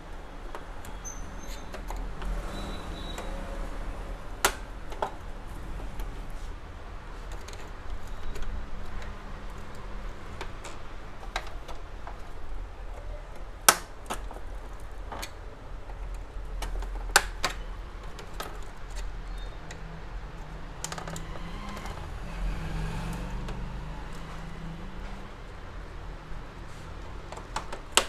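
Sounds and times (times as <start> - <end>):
plastic printer parts clicking: 7.2 - 21.3, 27.0 - 28.0.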